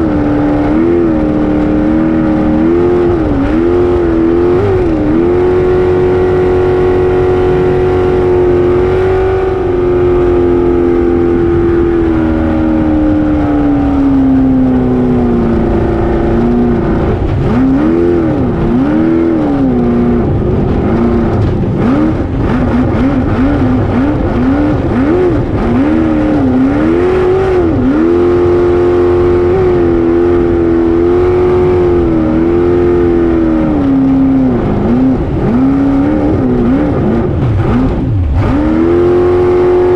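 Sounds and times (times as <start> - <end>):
boat engine running at high revs: 0.0 - 39.9.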